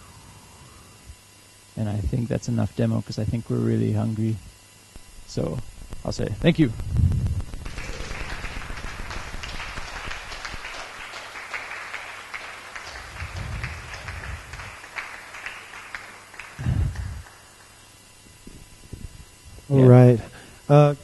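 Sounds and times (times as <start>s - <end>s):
audience applauding: 7.6s - 17.8s.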